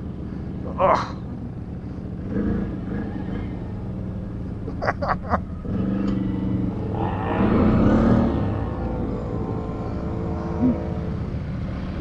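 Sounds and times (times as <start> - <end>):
quad bike engine running: 0.0 - 12.0.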